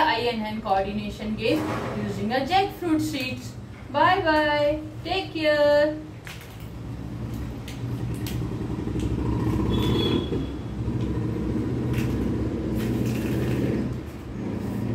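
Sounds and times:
seeds clicking on tiled floor: 0:06.2 - 0:09.2.

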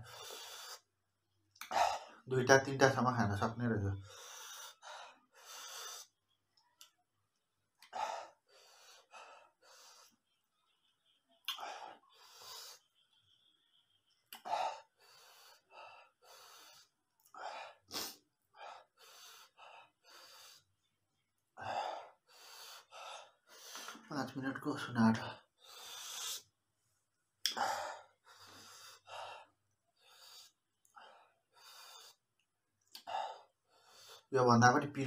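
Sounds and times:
man breathing hard through mouth: 0:00.0 - 0:00.9, 0:21.6 - 0:24.1
sharp gasps and hissing exhales: 0:00.0 - 0:00.9, 0:14.4 - 0:20.7, 0:25.6 - 0:26.5.

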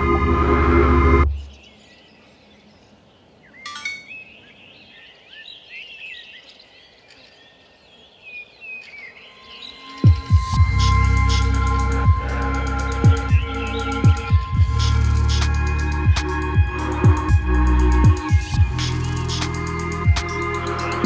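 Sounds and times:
small birds chirping: 0:01.3 - 0:17.3
electronic music: 0:10.0 - 0:21.0.

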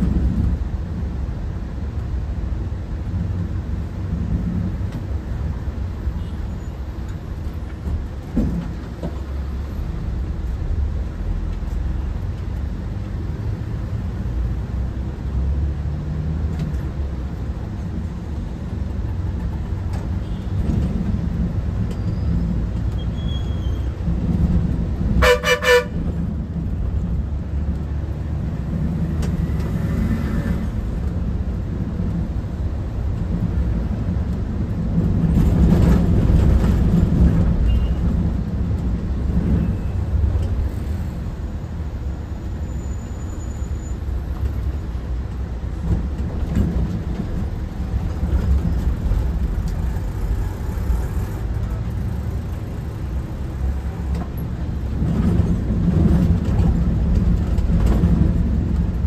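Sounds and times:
bus engine rumble: 0:00.0 - 0:59.0
road noise: 0:00.0 - 0:59.0
pulsing vehicle horn: 0:25.2 - 0:26.0.

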